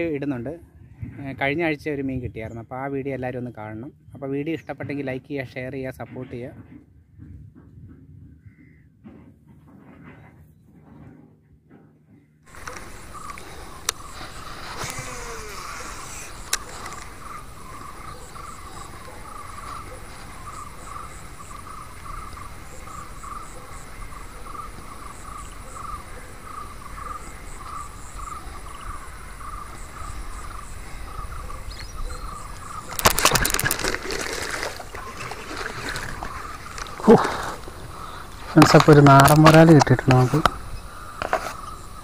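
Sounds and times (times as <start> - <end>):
faint insect chirps: 12.5 - 42.0
frog calling: 12.5 - 42.0
fish splashing at water surface: 32.8 - 37.7.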